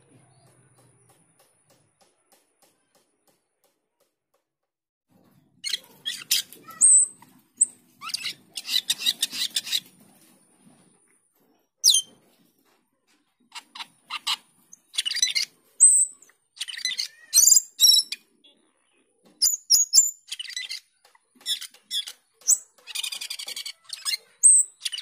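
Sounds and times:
starling chattering and clicking: 5.6 - 10.3, 13.5 - 18.2, 19.4 - 25.0.

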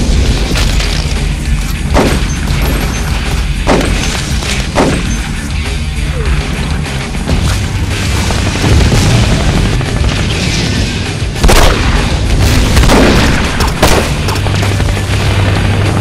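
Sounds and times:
heavy action music with low booms: 0.0 - 16.0
gunshots: 1.8 - 5.4, 7.3 - 16.0.

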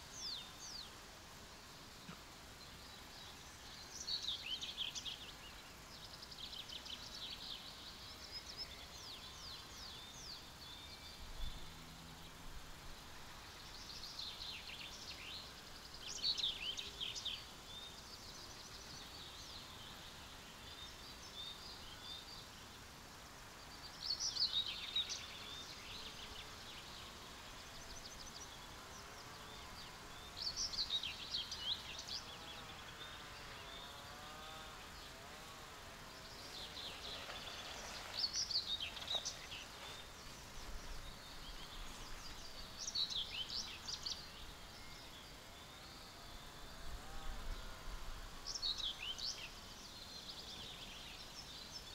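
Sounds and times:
songbird singing: 0.0 - 51.9.

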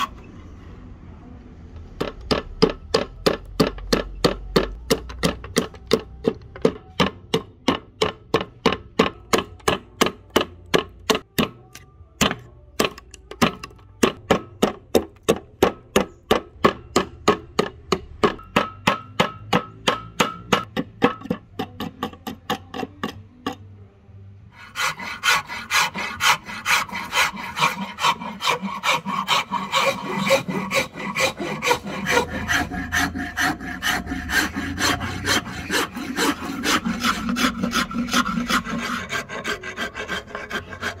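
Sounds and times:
file rasping on wooden handle: 24.6 - 41.0.

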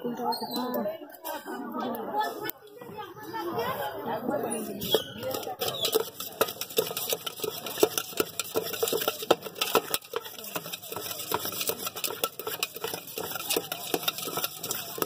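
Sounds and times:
fruit pieces clattering in metal tumbler: 5.2 - 15.0.

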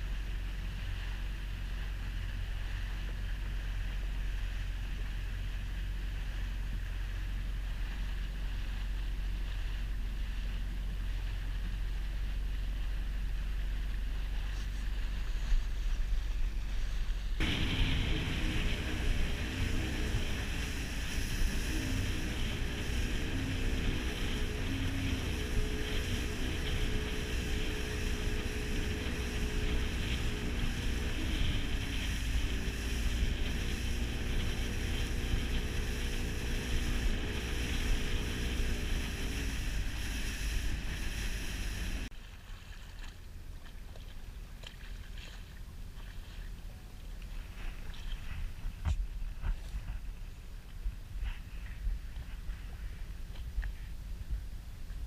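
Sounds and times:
motorboat engine humming: 0.0 - 55.0
water rushing along hull: 0.0 - 55.0
wind buffeting microphone: 14.8 - 42.1.

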